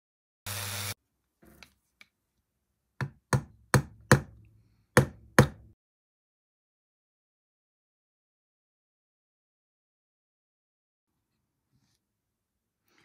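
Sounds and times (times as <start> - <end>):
hammer tapping on wood: 3.0 - 4.4, 5.0 - 5.7.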